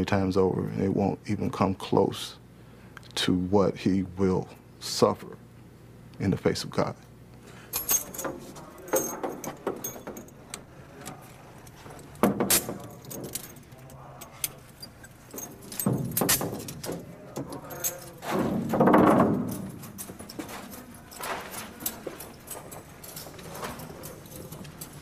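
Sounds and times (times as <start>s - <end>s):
handcuffs clicking and jingling: 7.6s - 25.0s
loud metallic clattering: 14.9s - 25.0s.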